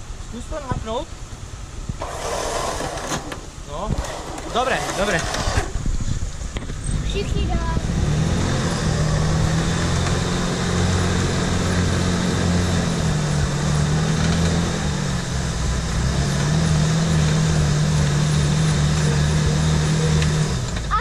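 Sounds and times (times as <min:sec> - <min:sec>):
suv engine running at low revs: 0:00.0 - 0:21.0.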